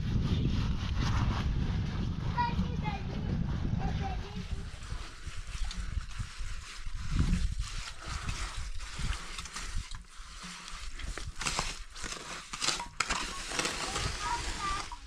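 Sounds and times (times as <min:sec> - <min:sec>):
low rumble: 0:00.0 - 0:06.2
trowel scraping wet concrete: 0:04.4 - 0:15.0.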